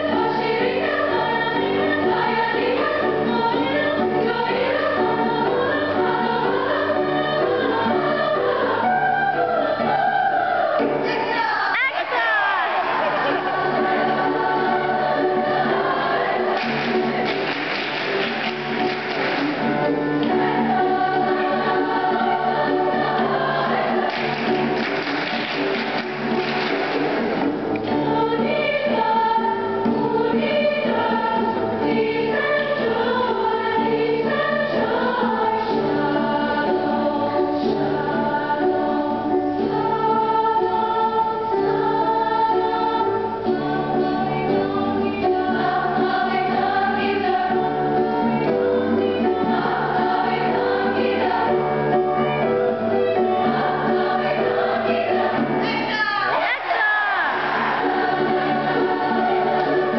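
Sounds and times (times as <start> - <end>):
choir singing in parts: 0.0 - 59.9.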